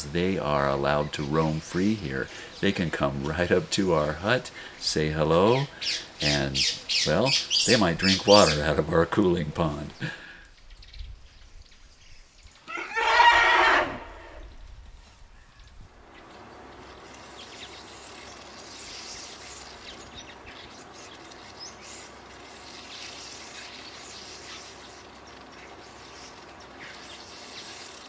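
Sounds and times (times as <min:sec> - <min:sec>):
elephant trumpeting: 0:12.7 - 0:14.6
insect chirps: 0:15.4 - 0:28.0.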